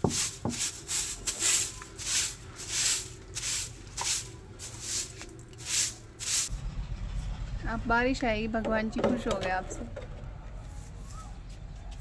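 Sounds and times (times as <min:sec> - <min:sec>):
broom sweeping stone floor: 0:00.0 - 0:06.6, 0:10.6 - 0:12.0.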